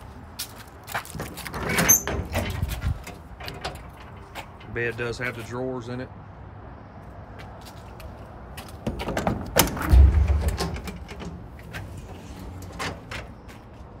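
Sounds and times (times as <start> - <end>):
metal latch clicks and rattles: 1.2 - 4.8, 8.9 - 11.9
metal door thumping shut: 1.5 - 4.7, 8.8 - 11.6.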